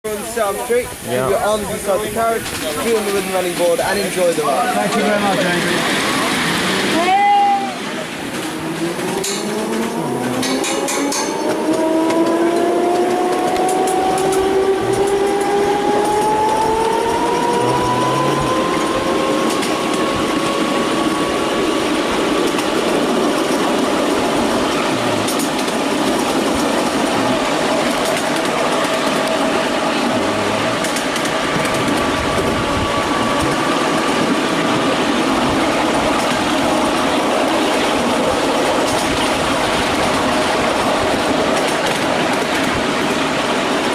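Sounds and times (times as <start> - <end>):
miniature train rattling: 0.1 - 43.9
motor whine: 14.3 - 19.4.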